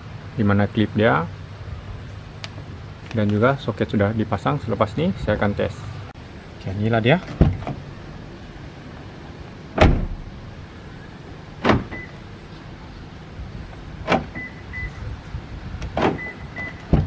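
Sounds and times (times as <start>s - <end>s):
car door latch clunks: 7.2s - 7.8s, 9.8s - 10.3s, 11.6s - 12.1s, 14.0s - 14.5s, 15.8s - 17.0s
short high beeps from car: 14.4s - 15.0s, 16.2s - 16.8s.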